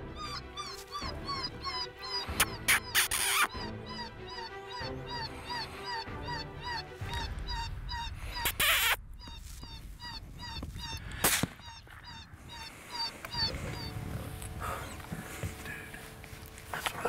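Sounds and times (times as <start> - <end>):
high squealing distress call: 2.0 - 14.0
sharp crack: 11.0 - 11.7.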